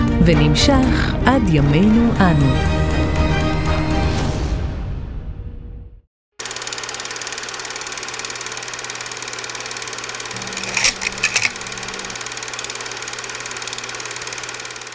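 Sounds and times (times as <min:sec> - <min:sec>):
small machine clattering: 0:06.4 - 0:14.9.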